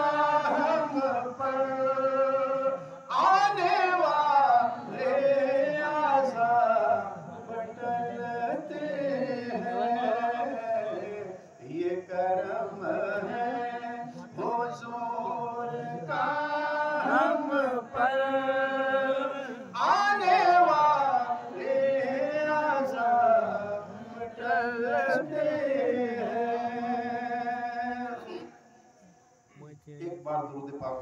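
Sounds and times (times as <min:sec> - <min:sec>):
man chanting: 0:00.0 - 0:07.4, 0:29.7 - 0:31.0.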